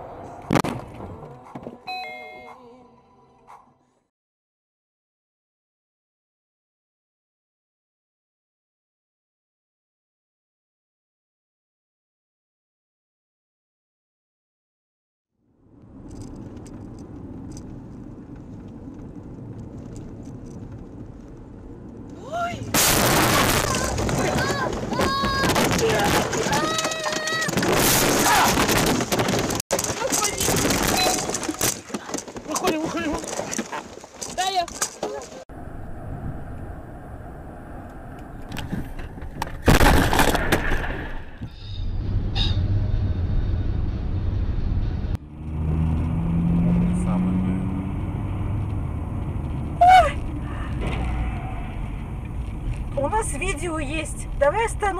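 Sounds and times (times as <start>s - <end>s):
car interior road noise: 15.5s - 22.8s, 23.5s - 27.7s, 28.3s - 39.7s, 42.0s - 54.9s
vehicle crash: 22.7s - 46.6s, 48.4s - 54.9s.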